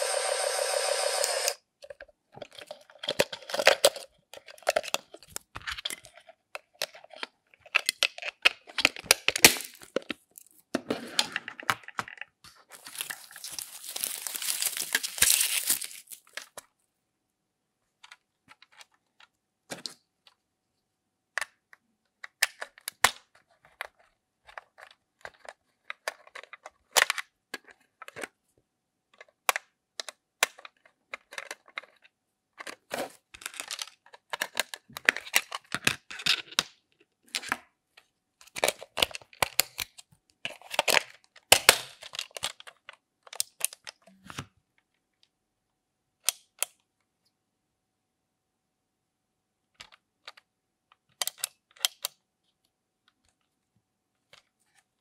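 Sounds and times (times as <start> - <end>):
screwdriver working a screw: 0.0 - 1.6
foam sleeve rustling: 12.7 - 16.3.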